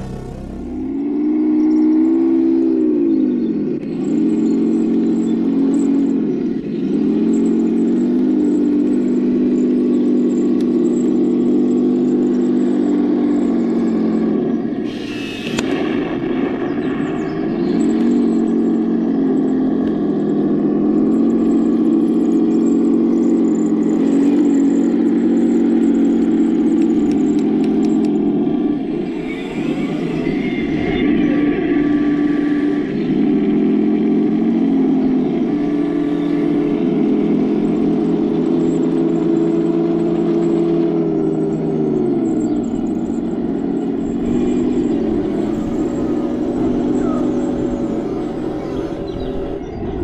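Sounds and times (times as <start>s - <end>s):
short noisy burst: 0.0s - 1.4s
simulated tank engine through speaker: 0.0s - 50.0s.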